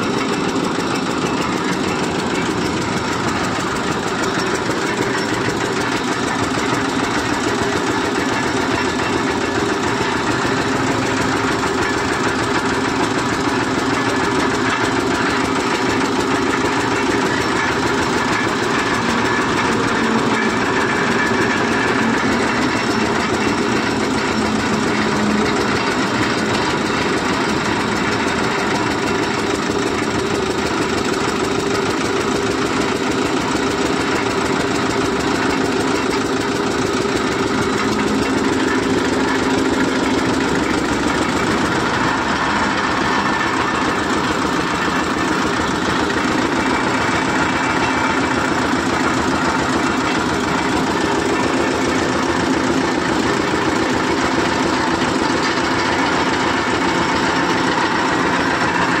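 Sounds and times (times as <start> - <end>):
drilling rig running: 0.0 - 59.0
fast knocking rhythm: 0.0 - 59.0.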